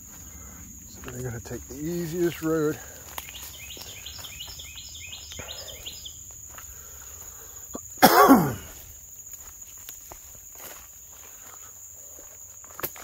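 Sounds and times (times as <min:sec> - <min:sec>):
footsteps through brush and leaves: 0:00.0 - 0:07.6, 0:08.6 - 0:13.0
high insect drone: 0:00.0 - 0:13.0
cough-like vocal sound: 0:07.7 - 0:08.8.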